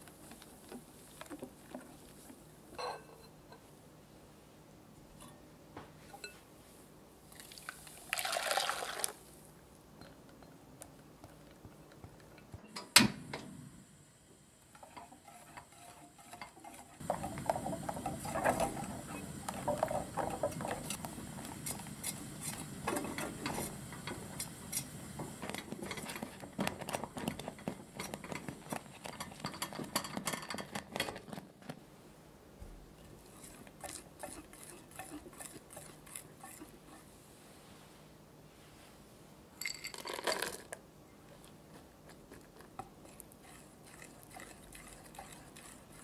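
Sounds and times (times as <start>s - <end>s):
whisk scraping metal saucepan: 14.8s - 24.9s, 33.2s - 37.1s, 43.0s - 46.0s.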